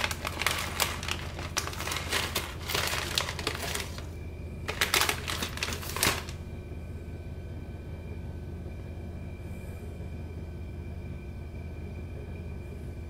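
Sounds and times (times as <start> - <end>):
dry noodles crackling: 0.0 - 6.4
plastic packet crinkling: 0.0 - 6.4.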